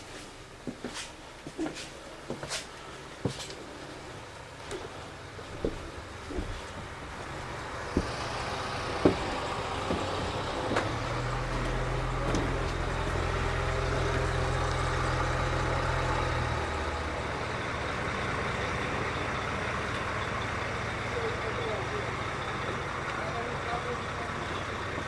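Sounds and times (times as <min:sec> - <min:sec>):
footsteps on boat deck: 0:00.0 - 0:13.2
low engine hum: 0:02.9 - 0:25.0.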